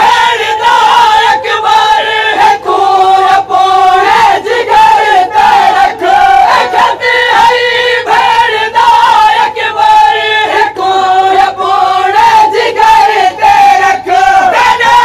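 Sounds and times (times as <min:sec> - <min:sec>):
men chanting a lament in chorus: 0:00.0 - 0:15.0.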